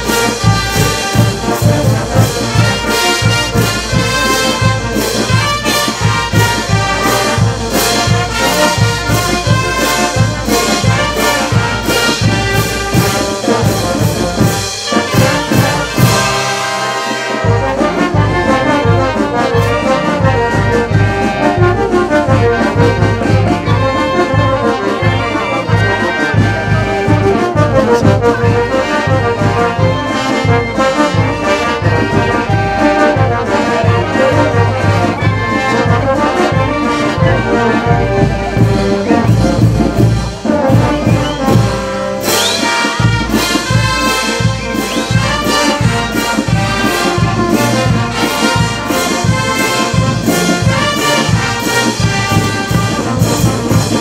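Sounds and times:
brass band playing: 0.0s - 54.0s.

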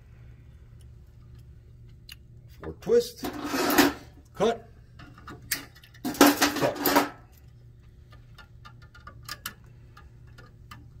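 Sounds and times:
metal clatter: 3.2s - 4.1s, 5.0s - 7.3s
small metallic clicks and clinks: 5.0s - 11.0s.

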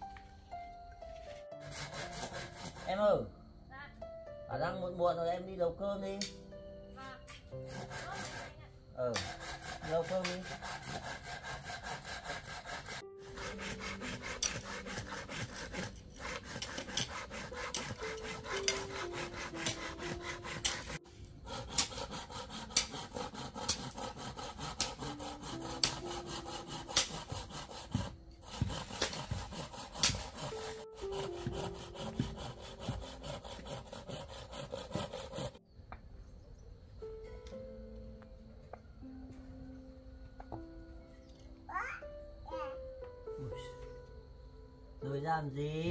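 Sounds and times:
soft background music: 0.0s - 45.9s
blade rasping bamboo: 1.6s - 3.2s, 7.0s - 35.6s.

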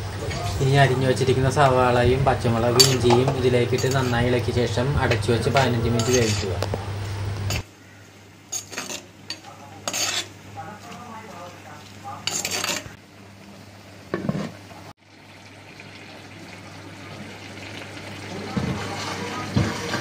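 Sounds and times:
steady low hum: 0.0s - 8.7s
spoon scraping clay pot: 2.7s - 4.4s, 5.1s - 6.7s, 9.8s - 10.4s, 12.3s - 13.0s.

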